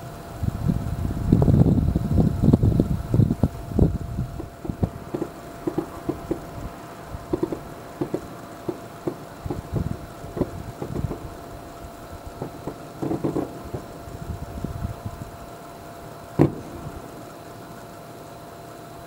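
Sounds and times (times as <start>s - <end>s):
distant fireworks booms and pops: 3.4s - 15.2s, 16.3s - 17.4s.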